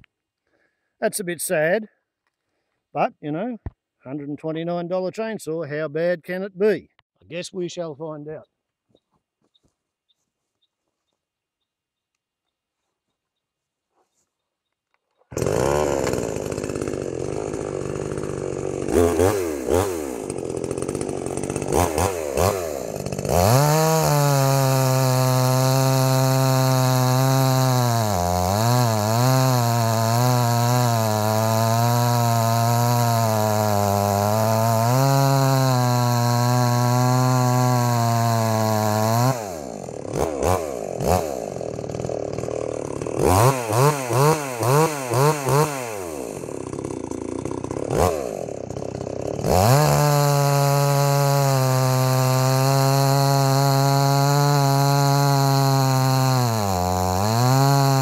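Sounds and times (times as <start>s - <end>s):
chainsaw cutting log: 15.2s - 58.0s.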